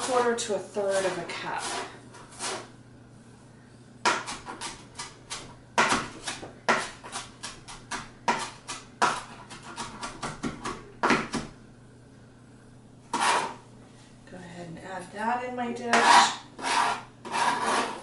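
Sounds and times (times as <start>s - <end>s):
knife chopping on cutting board: 4.0s - 11.5s.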